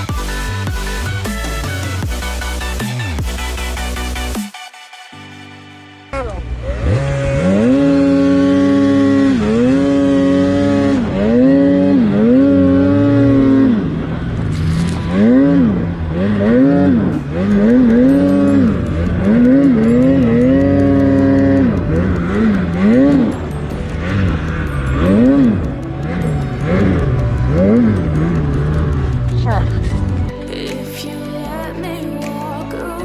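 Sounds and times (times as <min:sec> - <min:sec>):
snowmobile engine revving: 0:06.2 - 0:30.7.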